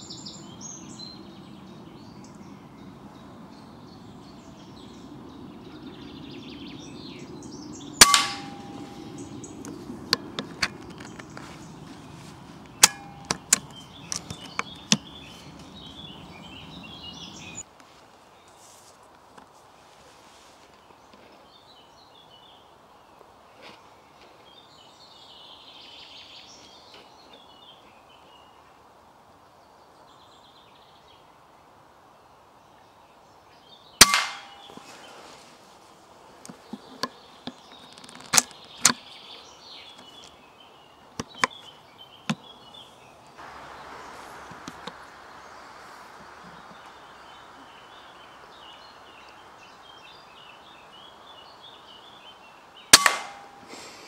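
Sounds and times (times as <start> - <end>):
faint birdsong: 0.0 - 54.0
air rifle shot: 8.0 - 9.1, 34.0 - 34.7, 52.9 - 53.7.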